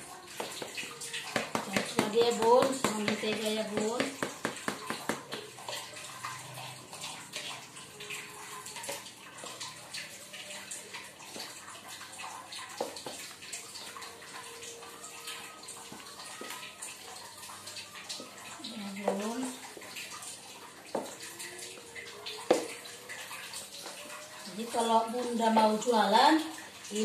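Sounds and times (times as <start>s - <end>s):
hands mixing dough in plastic tub: 0.3s - 6.4s.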